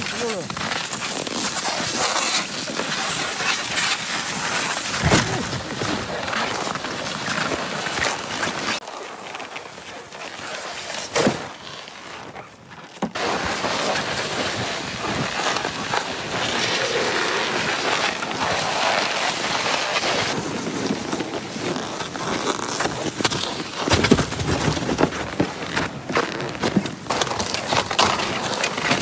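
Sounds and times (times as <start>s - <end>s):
sled scraping over snow and ice: 0.0s - 29.0s.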